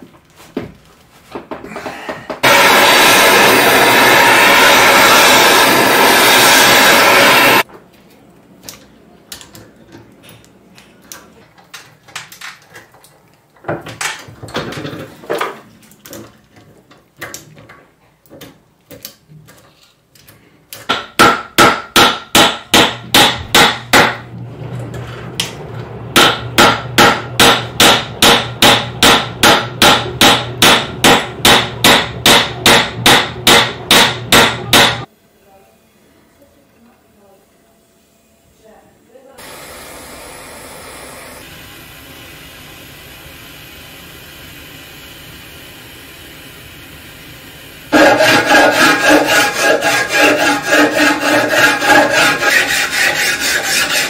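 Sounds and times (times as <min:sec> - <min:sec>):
loud rushing noise: 0:02.4 - 0:07.6.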